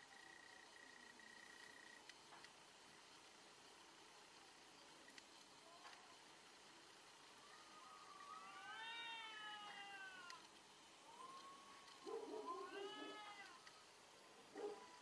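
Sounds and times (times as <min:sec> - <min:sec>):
cats yowling: 0:07.4 - 0:10.4, 0:11.1 - 0:13.7.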